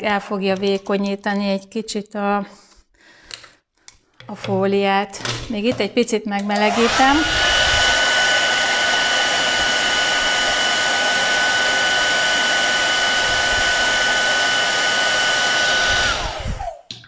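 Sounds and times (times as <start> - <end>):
hair dryer blowing: 6.6 - 16.9.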